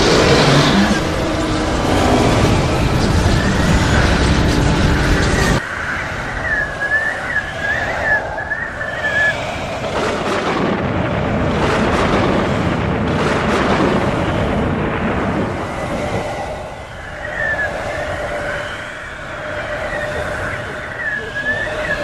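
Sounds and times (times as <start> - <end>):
strong wind blowing: 0.0 - 22.0
high wavering whistle: 0.2 - 9.9, 15.8 - 22.0.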